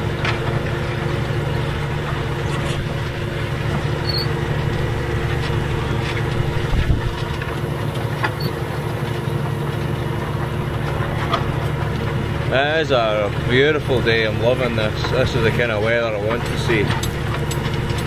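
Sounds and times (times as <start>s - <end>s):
tractor engine running under load: 0.0s - 18.0s.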